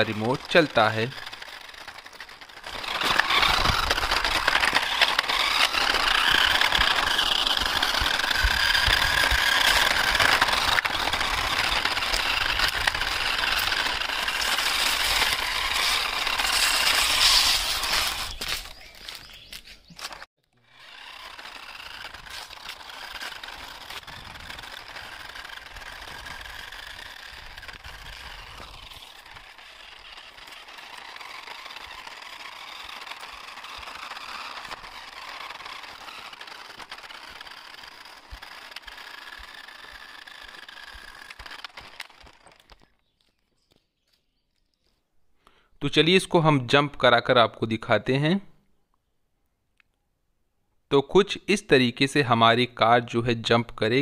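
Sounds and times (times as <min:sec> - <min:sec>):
toy car motor whining: 0:00.0 - 0:43.2
wheels rasping on concrete: 0:00.0 - 0:45.7.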